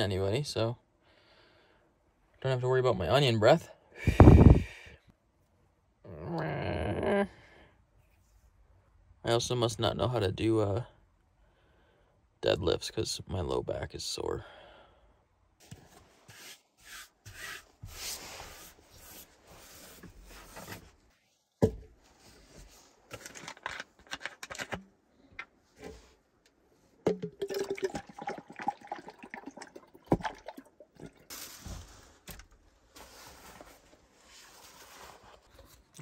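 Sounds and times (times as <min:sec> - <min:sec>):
rustling handling noises: 0:21.9 - 0:26.5, 0:31.3 - 0:36.0
water sloshing in plastic bottle: 0:27.0 - 0:31.6.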